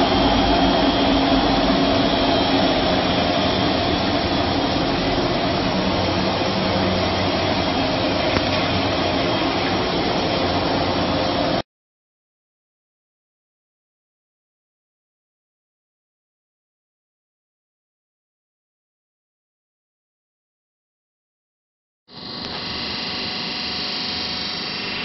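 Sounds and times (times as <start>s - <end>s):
machine droning with motor hum: 0.0s - 11.6s, 22.1s - 25.0s.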